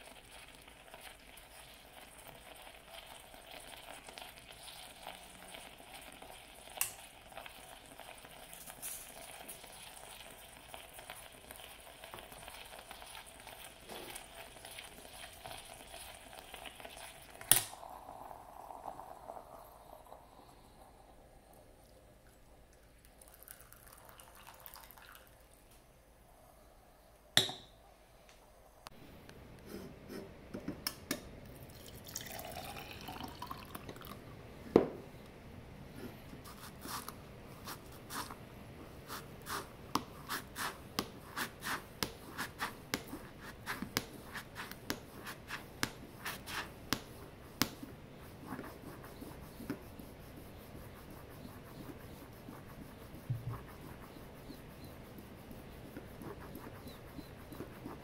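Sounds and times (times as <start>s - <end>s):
liquid filling a vessel: 0.0s - 25.7s, 31.5s - 34.3s
coffee pouring: 0.0s - 25.8s, 31.5s - 34.4s.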